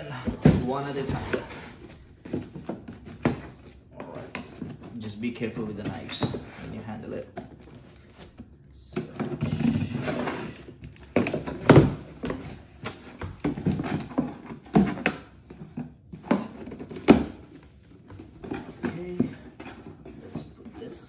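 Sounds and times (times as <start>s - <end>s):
box thunks: 0.1s - 3.6s, 9.0s - 17.6s.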